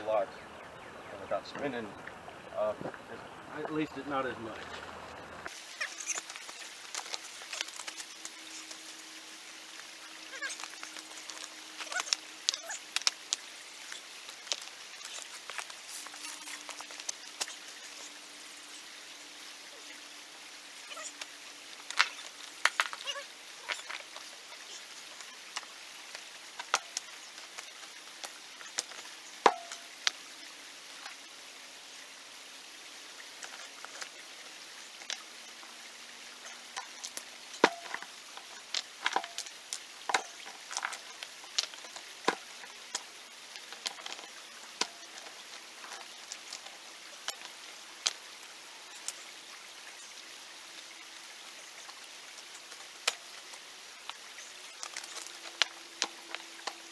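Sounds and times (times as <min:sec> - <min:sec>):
rocks knocking together: 0:05.5 - 0:08.9, 0:09.8 - 0:17.8, 0:21.2 - 0:30.2, 0:36.4 - 0:48.2, 0:51.9 - 0:56.9.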